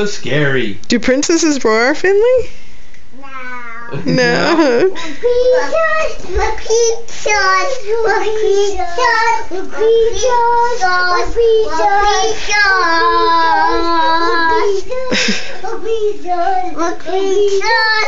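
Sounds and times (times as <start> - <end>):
young child singing: 5.1 - 18.0.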